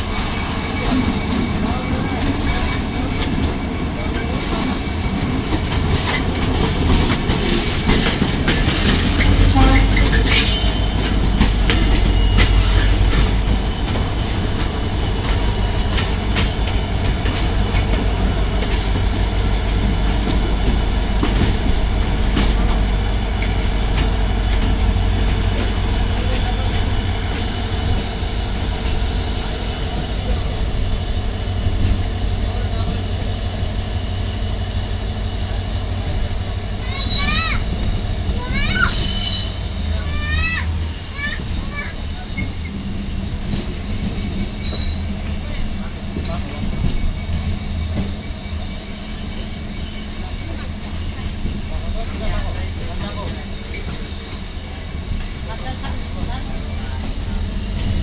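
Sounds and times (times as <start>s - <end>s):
diesel locomotives rumbling: 0.0s - 58.0s
wheel and rail noise: 0.0s - 58.0s.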